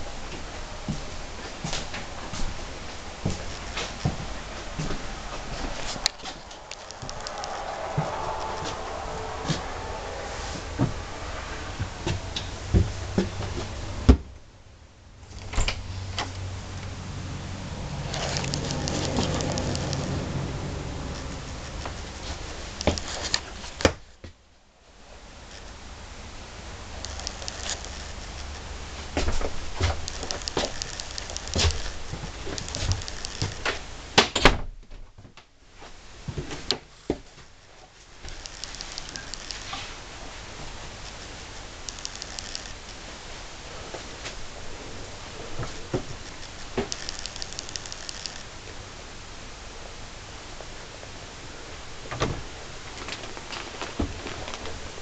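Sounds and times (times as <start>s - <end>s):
rustling camera handling noise: 46.3s - 48.4s.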